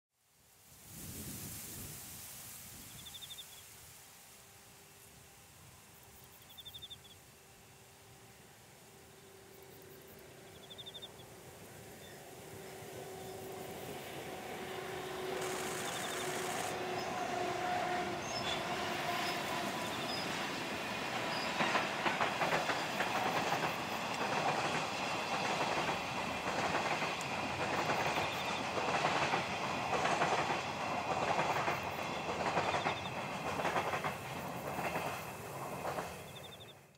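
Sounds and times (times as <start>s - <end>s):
locomotive steady tone: 4.5s - 36.9s
wagon wheels clickety-clack: 21.5s - 36.1s.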